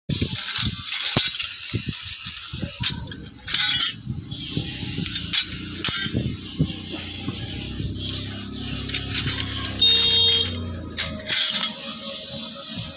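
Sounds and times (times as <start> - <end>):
metal knife blanks clinking: 8.7 - 12.0.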